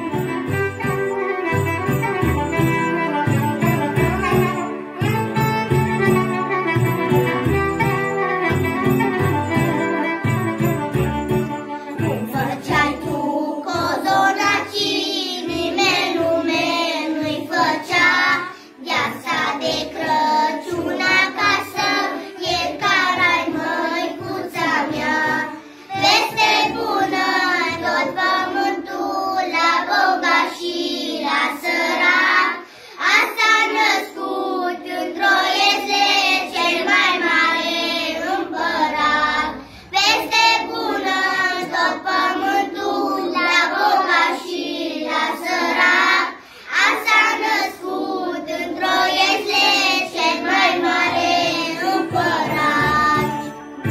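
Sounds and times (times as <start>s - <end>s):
children singing in unison: 12.0s - 53.9s.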